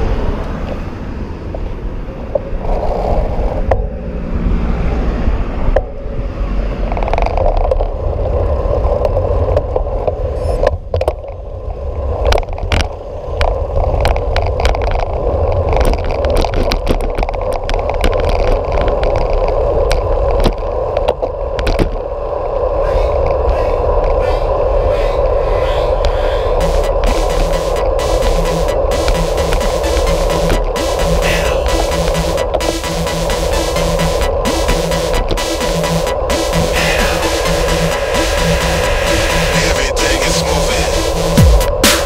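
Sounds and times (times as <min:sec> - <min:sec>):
bicycle clicks and rattles: 0:06.9 - 0:22.0.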